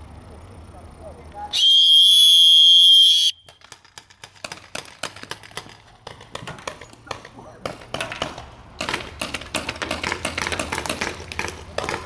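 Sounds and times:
paintball markers firing: 0:03.4 - 0:12.0.

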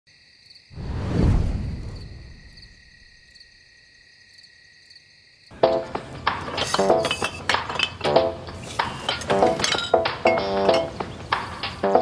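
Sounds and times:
crickets chirping: 0:00.1 - 0:11.9
glass bottles clinking: 0:05.6 - 0:12.0.

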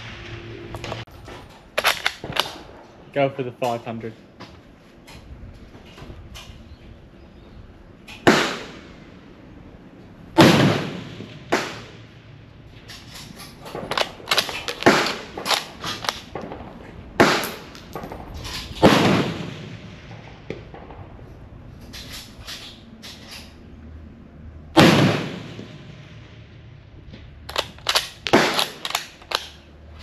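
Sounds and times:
rifle bolt metallic clicks: 0:01.8 - 0:02.6, 0:12.9 - 0:16.4, 0:27.5 - 0:29.7
rifle shots with ringing echo: 0:08.1 - 0:09.2, 0:10.4 - 0:12.4, 0:13.6 - 0:21.2, 0:24.8 - 0:26.6, 0:27.5 - 0:29.7.

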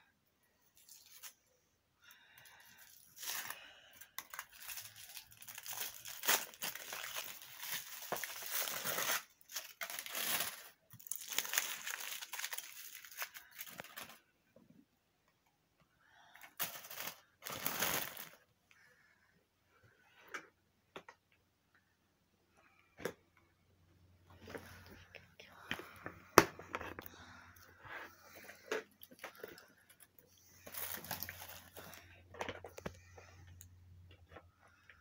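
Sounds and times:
foil wrapping crinkling and tearing: 0:02.7 - 0:14.2, 0:16.5 - 0:18.4, 0:30.6 - 0:32.0.

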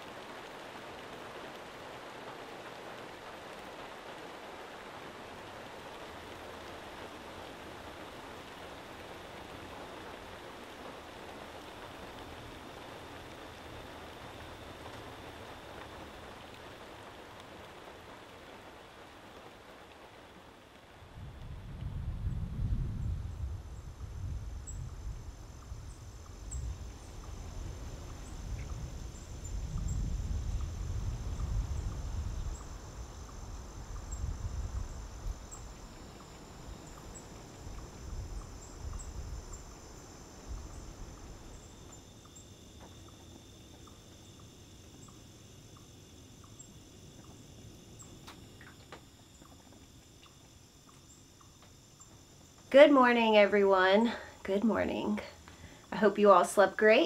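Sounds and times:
wind buffeting microphone: 0:21.0 - 0:42.0
faint clicks and ticks: 0:48.0 - 0:52.8.

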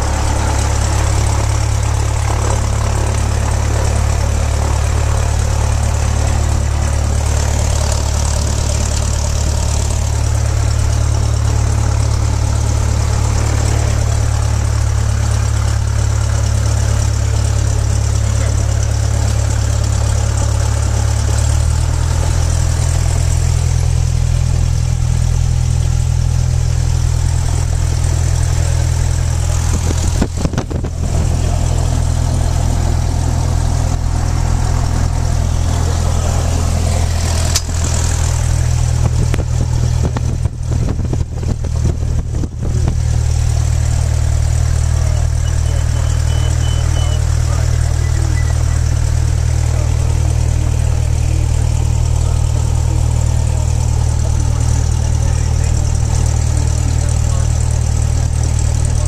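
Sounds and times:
light aircraft engine and propeller: 0:00.0 - 0:59.0.

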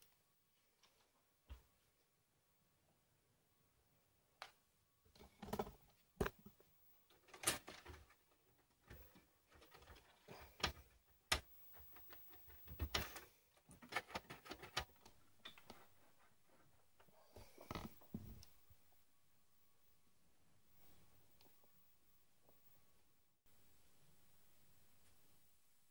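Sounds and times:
metal computer case being handled: 0:11.7 - 0:14.9.

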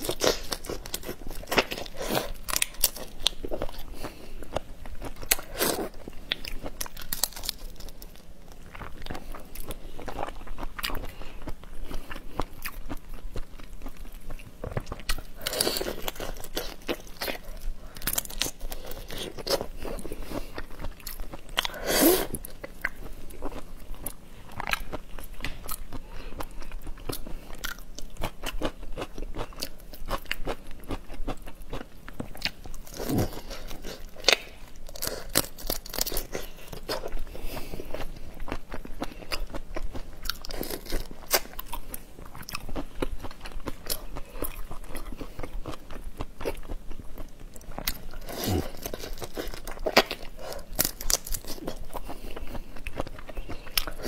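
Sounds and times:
chewing: 0:00.0 - 0:54.0
prawn shells cracking and crunching: 0:06.8 - 0:08.0, 0:32.8 - 0:36.5, 0:48.2 - 0:51.8.

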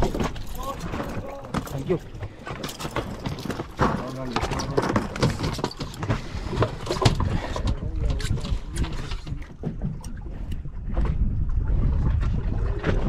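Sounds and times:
wind buffeting microphone: 0:06.0 - 0:13.0.

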